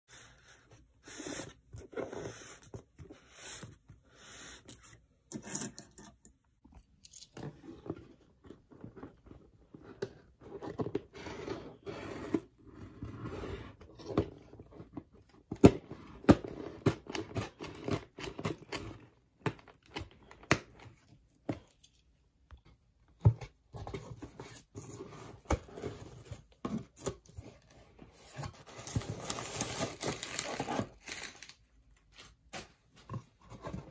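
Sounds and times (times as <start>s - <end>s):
cardboard box scraping and tapping: 23.1s - 30.9s
packing paper rustling: 28.3s - 32.4s.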